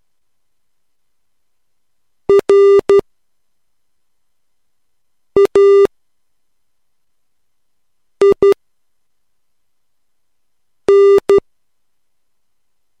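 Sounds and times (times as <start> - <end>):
morse code beeps: 5.4 - 5.9, 8.2 - 8.6, 10.9 - 11.4.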